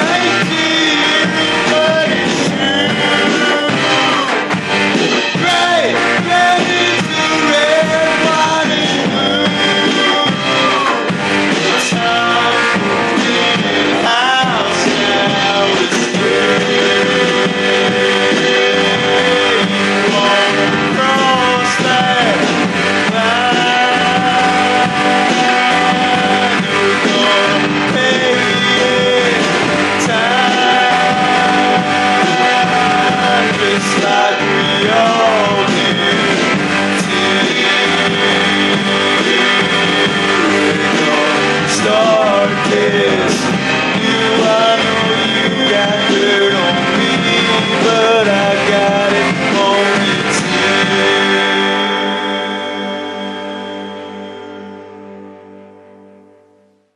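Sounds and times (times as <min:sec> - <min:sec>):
rock song with guitar: 0:00.0 - 0:56.5.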